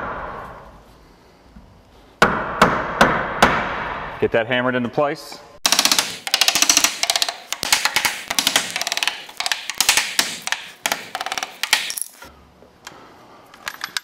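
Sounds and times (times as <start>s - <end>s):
hammer striking wood: 2.2s - 3.9s, 5.6s - 12.0s.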